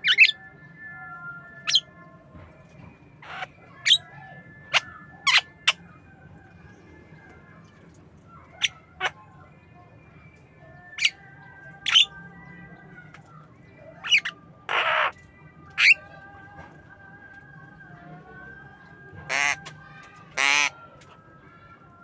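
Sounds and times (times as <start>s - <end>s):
myna squawking calls: 0.0s - 0.4s, 3.2s - 4.0s, 11.9s - 12.1s, 14.0s - 15.2s, 15.8s - 16.0s, 19.3s - 19.7s, 20.4s - 20.7s.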